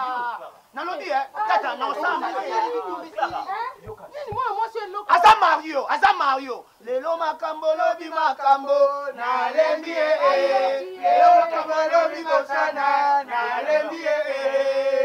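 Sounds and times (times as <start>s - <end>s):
voices singing a chant: 1.2s - 4.4s, 7.2s - 15.0s.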